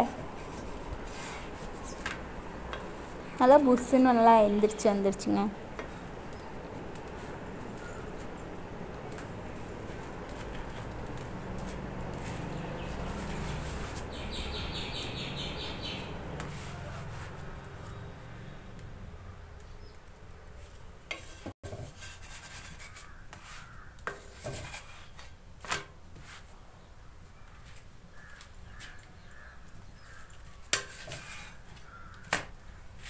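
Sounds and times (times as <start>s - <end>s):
spatula rubbing flatbread on pan: 0.3s - 2.0s, 9.2s - 14.1s, 16.4s - 17.6s, 21.1s - 25.4s, 26.1s - 26.5s, 30.1s - 32.1s
bird chirping: 12.4s - 16.2s.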